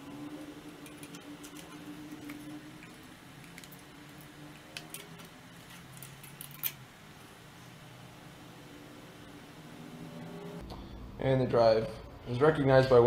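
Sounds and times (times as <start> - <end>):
computer humming: 0.0 - 12.2
cables clicking into sockets: 0.8 - 6.8.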